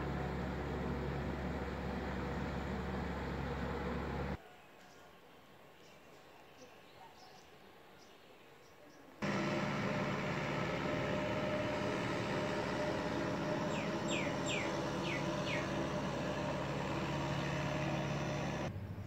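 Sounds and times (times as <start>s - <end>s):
engine humming: 0.0s - 4.4s, 9.2s - 19.0s
bird chirping: 12.7s - 18.4s.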